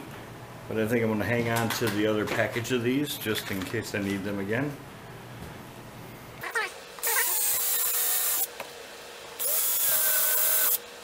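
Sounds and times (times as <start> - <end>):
drill boring through plastic: 7.0 - 8.5, 9.4 - 10.9.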